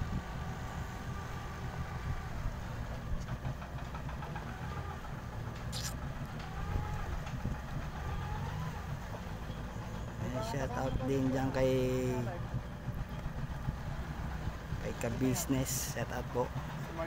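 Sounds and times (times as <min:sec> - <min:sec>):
sharp click: 0:05.7 - 0:06.0.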